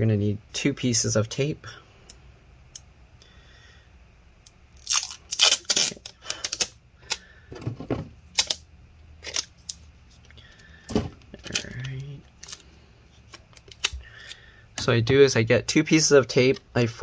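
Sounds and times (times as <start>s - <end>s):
adhesive tape ripping off roll: 4.7s - 6.8s.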